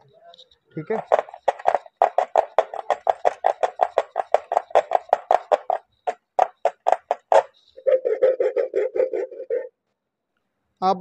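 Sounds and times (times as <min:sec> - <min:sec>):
hacksaw sawing through metal panel: 0:01.0 - 0:09.6.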